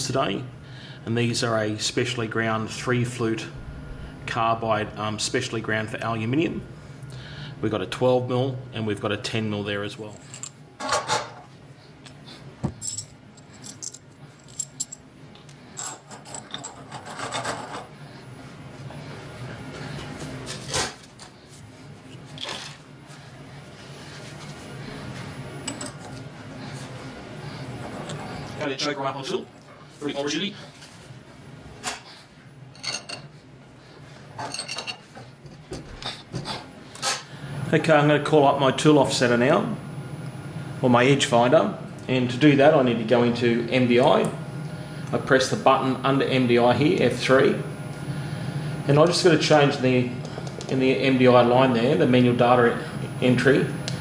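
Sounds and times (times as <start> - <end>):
low steady hum: 0.0 - 54.0
metal clinks and rattles of spanner: 12.7 - 15.0, 15.7 - 17.8, 34.4 - 35.1.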